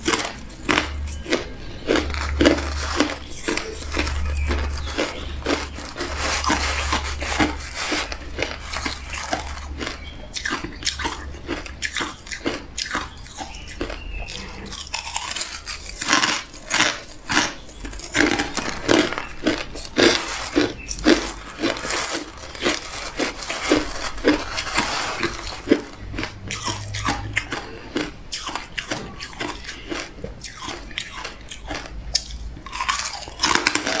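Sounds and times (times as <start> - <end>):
chewing crushed ice: 0.0 - 34.0.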